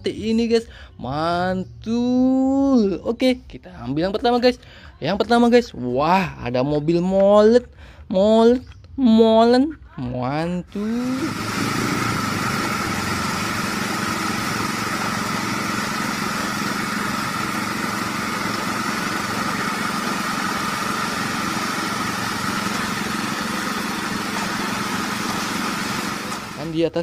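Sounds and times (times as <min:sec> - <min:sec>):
small motor droning with whine: 0:10.7 - 0:26.7.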